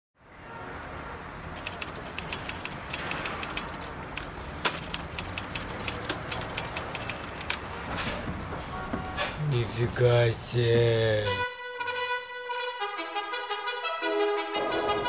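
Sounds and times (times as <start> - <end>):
low city hum: 1.2 - 13.0
typewriter keys clacking: 1.6 - 7.7.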